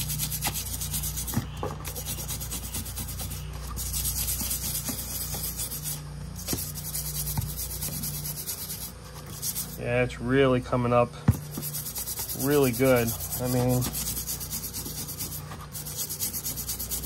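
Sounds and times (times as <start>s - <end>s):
scrubbing rust off metal: 0.0s - 10.0s, 11.4s - 17.0s.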